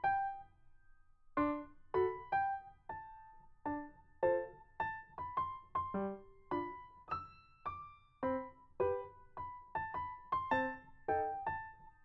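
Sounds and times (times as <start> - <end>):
slow piano melody: 0.0 - 12.0.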